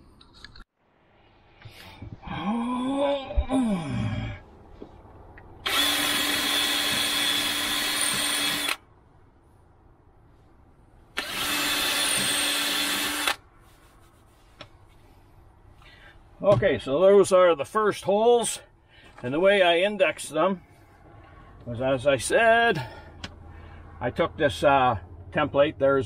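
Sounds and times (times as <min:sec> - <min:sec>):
cordless drill boring into wood: 0:05.6 - 0:08.8, 0:11.2 - 0:13.4.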